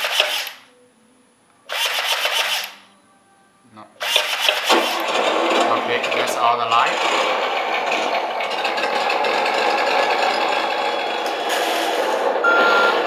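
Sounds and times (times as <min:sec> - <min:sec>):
electric drivetrain rattle: 0:04.2 - 0:13.0
high beep: 0:12.4 - 0:13.0.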